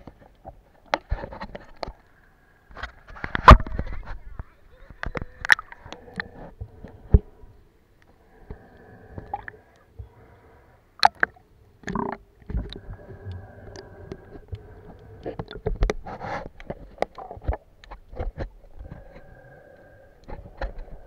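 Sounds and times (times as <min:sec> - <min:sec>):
water sloshing and gurgling: 0:05.0 - 0:10.3, 0:11.0 - 0:21.0.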